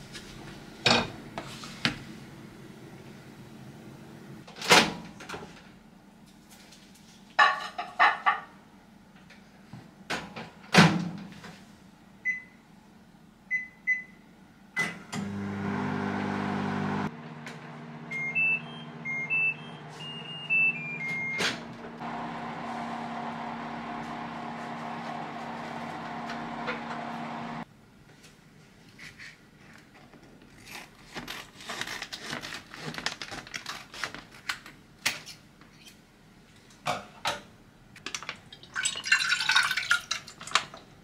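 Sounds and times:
microwave oven running hum: 0:00.0 - 0:04.5, 0:12.1 - 0:27.7
keypad beeps: 0:18.1 - 0:21.4
tune of beeps: 0:18.2 - 0:21.4.

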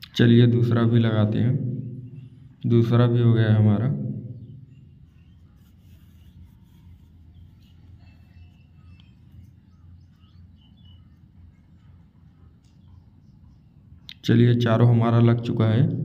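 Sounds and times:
low steady hum: 0:00.0 - 0:16.0
faint high chirps: 0:04.5 - 0:14.2.

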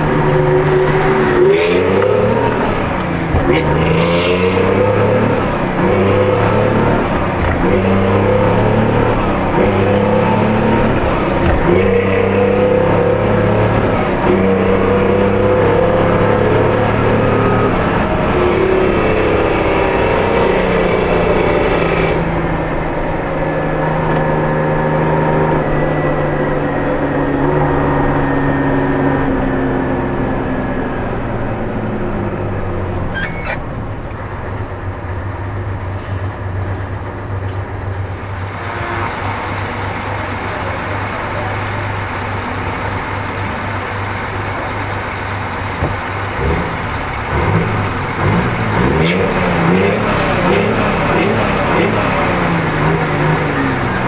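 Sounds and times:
diesel truck engine: 0:00.0 - 0:54.0
air brake hiss: 0:36.0 - 0:37.1.

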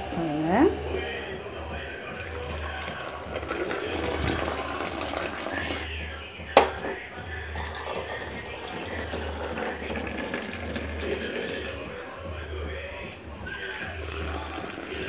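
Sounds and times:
coffee pouring into cup: 0:01.0 - 0:12.0, 0:12.6 - 0:15.0
sharp knock: 0:06.5 - 0:07.1.

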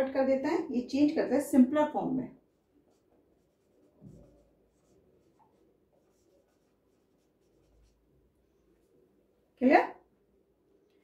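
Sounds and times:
marker scratching on whiteboard: 0:02.5 - 0:08.2.

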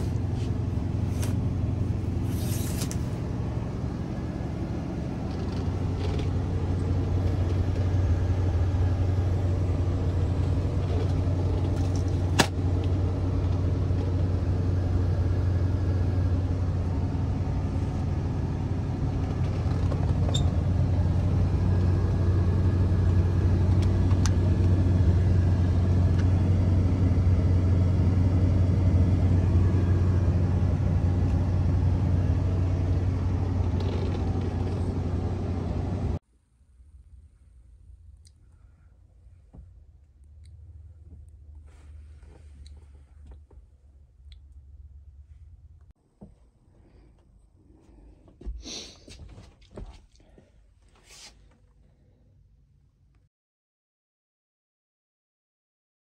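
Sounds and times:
engine droning: 0:00.0 - 0:36.2.

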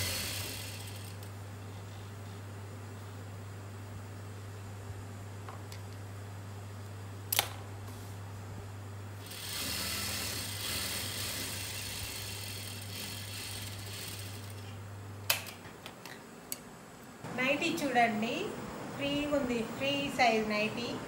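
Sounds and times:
sewing machine stitching: 0:00.0 - 0:01.2, 0:09.2 - 0:14.6
sewing machine motor humming: 0:00.0 - 0:01.3, 0:09.2 - 0:14.7.

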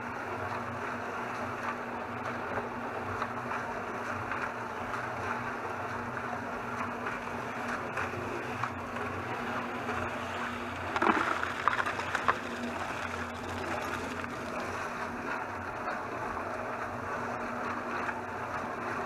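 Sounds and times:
cement mixer drum turning: 0:08.7 - 0:15.1
knocks and clatters: 0:10.8 - 0:14.6.

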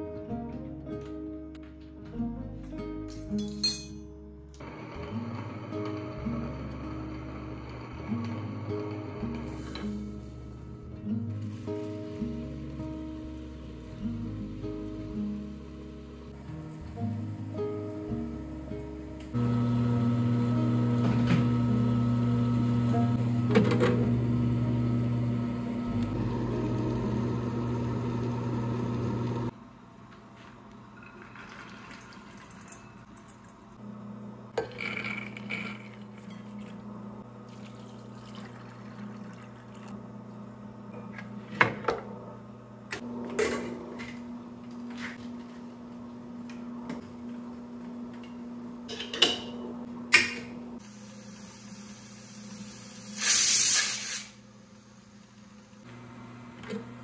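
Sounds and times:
kitchenware clinking: 0:03.1 - 0:04.1, 0:48.9 - 0:50.6
electrical appliance hum: 0:04.6 - 0:57.0
short loud hiss: 0:52.9 - 0:54.4.

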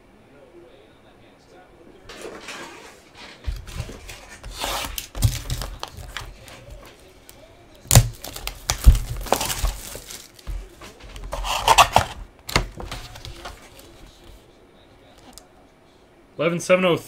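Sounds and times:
cardboard rubbing: 0:02.1 - 0:07.0, 0:07.9 - 0:14.4
plastic wrap crinkling: 0:03.6 - 0:07.1, 0:07.9 - 0:14.2.

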